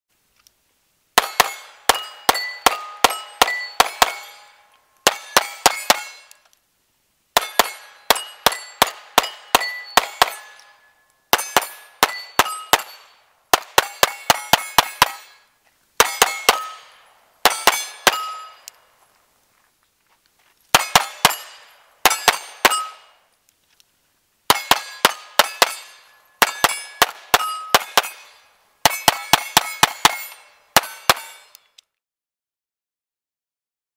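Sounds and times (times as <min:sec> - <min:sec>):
pistol shots: 0:01.2 - 0:06.3, 0:07.4 - 0:10.7, 0:11.3 - 0:15.4, 0:16.0 - 0:18.7, 0:20.7 - 0:23.2, 0:24.5 - 0:31.5
steel targets ringing: 0:01.2 - 0:06.4, 0:07.4 - 0:18.8, 0:20.8 - 0:23.2, 0:24.5 - 0:31.6.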